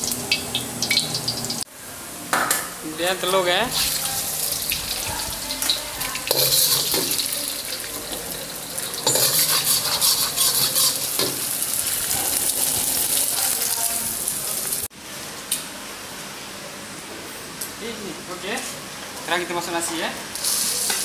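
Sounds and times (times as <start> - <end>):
egg sizzling in hot oil: 0.0 - 1.7, 3.7 - 14.9
metal ladle scraping a wok: 5.6 - 13.1.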